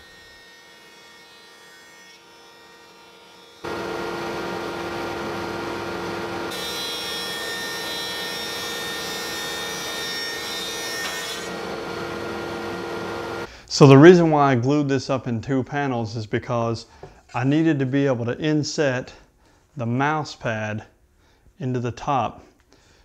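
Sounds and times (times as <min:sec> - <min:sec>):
thickness planer running: 0:03.6 - 0:13.5.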